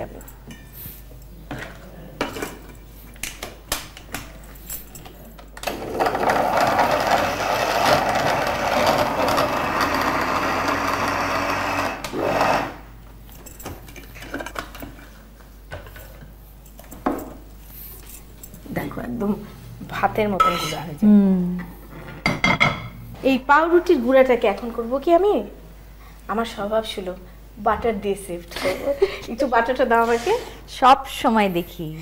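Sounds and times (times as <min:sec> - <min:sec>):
mixer grinder motor grinding: 0:05.6 - 0:12.9.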